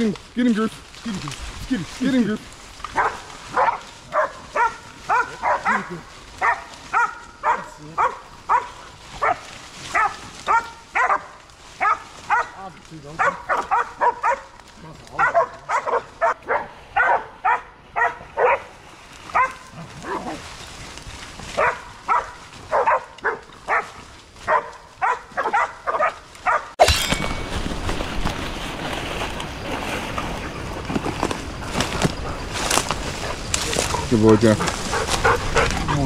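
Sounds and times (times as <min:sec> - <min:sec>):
dog barking: 0:02.9 - 0:12.6, 0:13.2 - 0:18.7, 0:19.3 - 0:20.4, 0:21.5 - 0:26.8.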